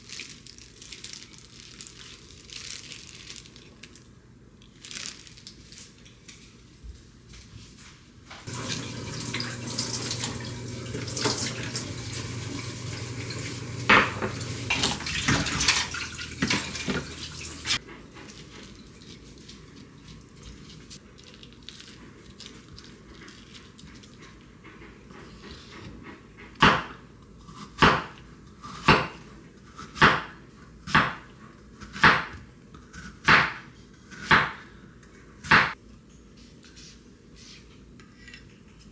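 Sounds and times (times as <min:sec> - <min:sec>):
tap water running into sink: 0:08.5 - 0:17.8
dishes clattering: 0:13.2 - 0:19.0.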